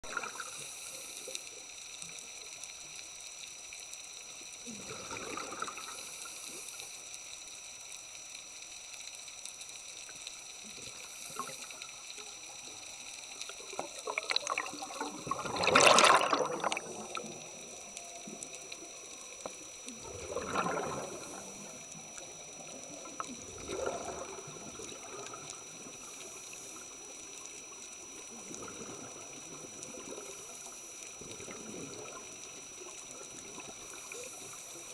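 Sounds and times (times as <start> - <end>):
bubbles gurgling underwater: 0.0 - 0.6, 4.7 - 6.0, 13.5 - 27.0, 28.2 - 30.5, 31.1 - 34.5
faint water hiss: 0.0 - 34.9.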